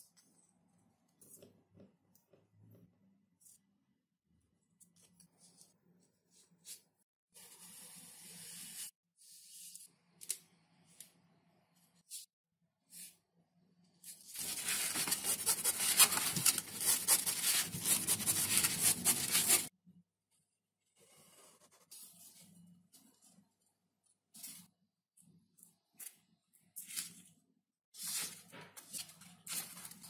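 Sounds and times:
knife slicing through foam sheet: 0:14.4 - 0:19.7.

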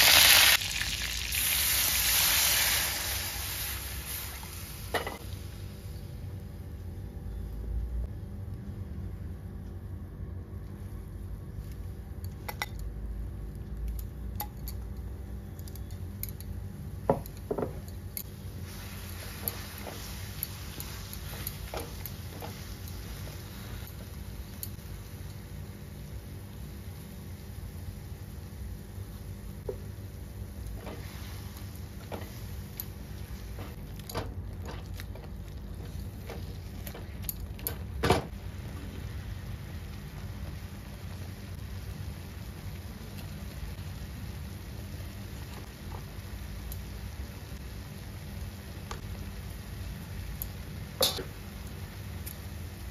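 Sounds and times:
steady low hum: 0:02.9 - 0:52.9
utensils clinking on metal pan: 0:51.0 - 0:51.3.

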